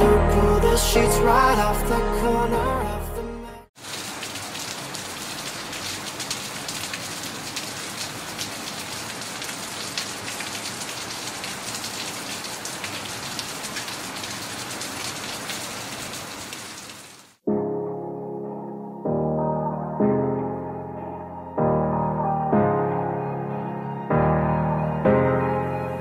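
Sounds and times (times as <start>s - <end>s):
steady rain falling: 3.8s - 17.4s.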